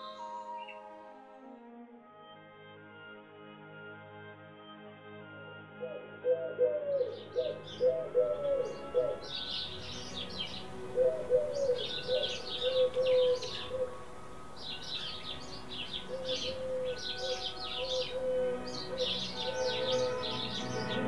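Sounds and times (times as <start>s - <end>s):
dove cooing: 5.8s - 9.4s, 10.9s - 14.0s, 16.0s - 20.2s
small birds chirping: 7.0s - 21.0s.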